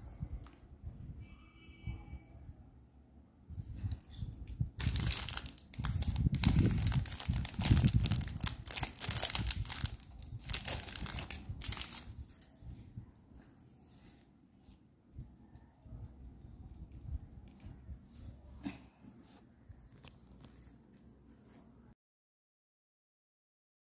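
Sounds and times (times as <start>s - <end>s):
packing wrapper crinkling: 4.7s - 12.7s.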